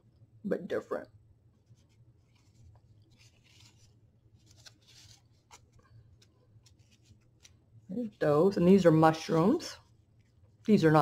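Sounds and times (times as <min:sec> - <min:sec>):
paper cards rustling: 0:01.6 - 0:08.1.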